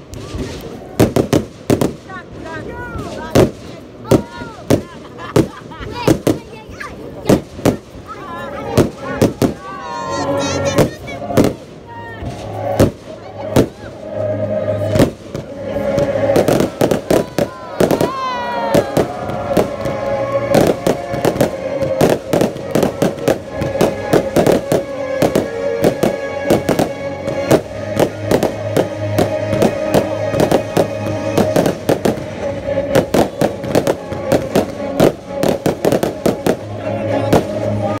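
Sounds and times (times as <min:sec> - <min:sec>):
fireworks bangs and crackles: 0:00.0 - 0:38.0
music playing: 0:08.2 - 0:38.0.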